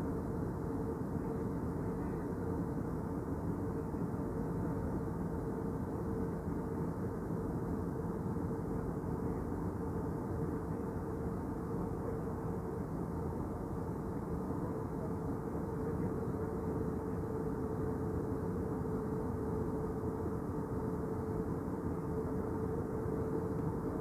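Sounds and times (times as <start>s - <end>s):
jet cabin engine and airflow noise: 0.0s - 24.0s
steady humming tone: 0.0s - 24.0s.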